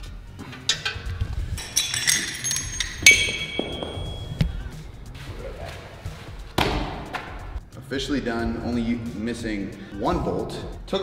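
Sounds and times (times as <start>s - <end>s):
background music: 0.0s - 11.0s
metal clinks on steel frame: 0.6s - 4.4s.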